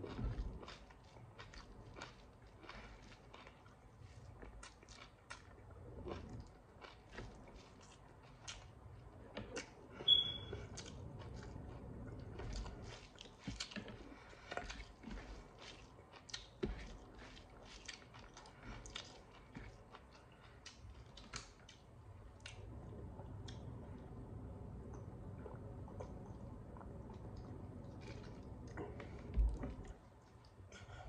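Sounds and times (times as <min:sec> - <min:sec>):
wet chewing and lip smacks: 0:00.1 - 0:23.7, 0:24.9 - 0:30.7
brief high squeak: 0:10.1 - 0:10.5.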